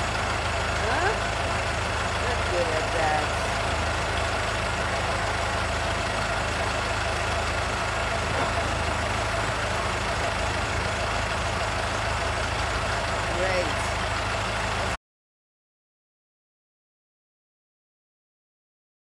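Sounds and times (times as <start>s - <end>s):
crane diesel engine running: 0.0s - 15.0s.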